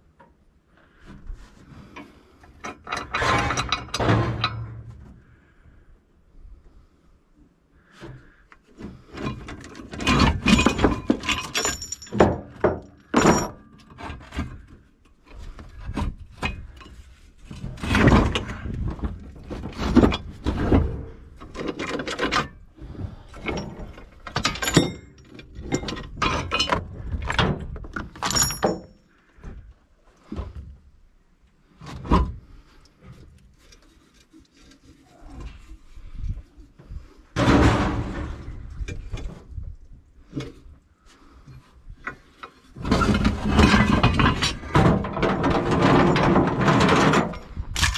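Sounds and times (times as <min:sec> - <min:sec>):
scrap metal clanking: 0:02.0 - 0:05.0, 0:36.9 - 0:39.3, 0:42.2 - 0:47.9.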